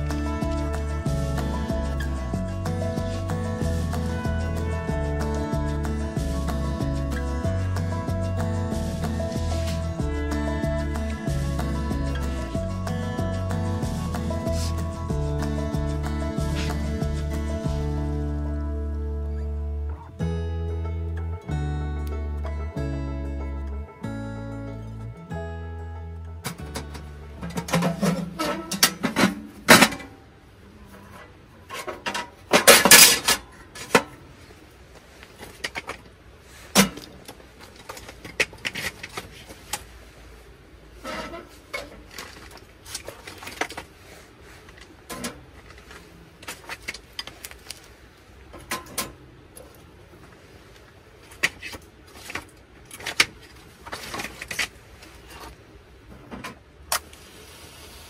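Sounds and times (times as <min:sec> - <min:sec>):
firewood clattering on grate: 0:26.5 - 0:30.2, 0:31.6 - 0:34.2.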